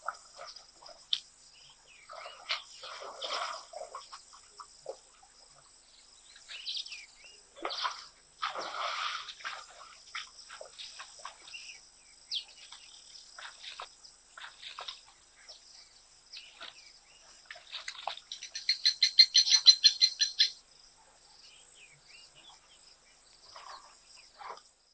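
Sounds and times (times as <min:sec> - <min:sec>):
bird chirps: 0:15.4 - 0:20.6.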